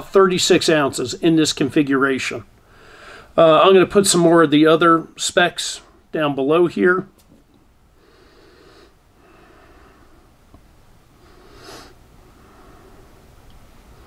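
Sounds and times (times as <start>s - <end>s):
man breathing through nose: 2.6s - 3.4s, 8.0s - 10.3s, 11.2s - 13.2s.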